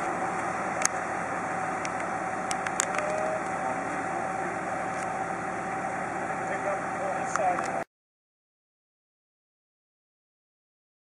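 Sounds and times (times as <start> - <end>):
truck engine running: 0.0 - 7.9.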